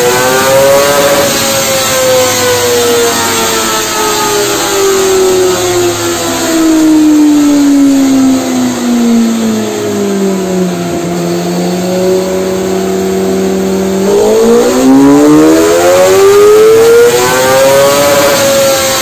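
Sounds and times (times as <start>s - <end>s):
motorcycle engine revving: 0.0s - 19.0s.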